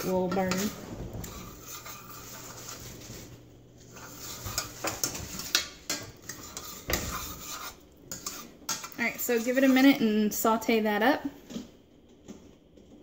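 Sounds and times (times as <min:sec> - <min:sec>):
onions sizzling in butter: 0:00.0 - 0:10.1
utensil scraping saucepan: 0:00.0 - 0:10.8.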